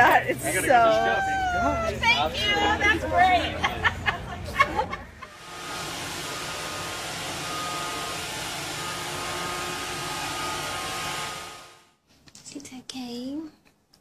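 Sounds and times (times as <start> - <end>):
robot vacuum cleaner running: 5.3 - 11.8.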